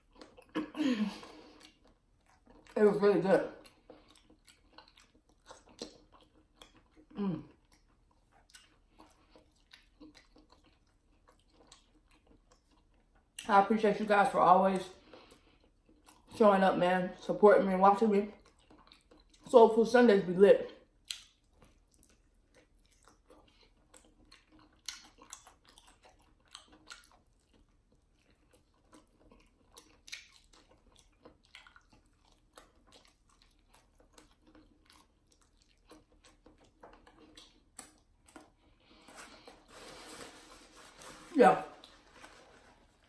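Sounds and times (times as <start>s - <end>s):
chewing chicken wing: 0.0s - 13.5s, 14.8s - 16.4s, 18.3s - 19.5s, 20.8s - 39.5s
mouth clicks and smacks: 21.0s - 22.2s.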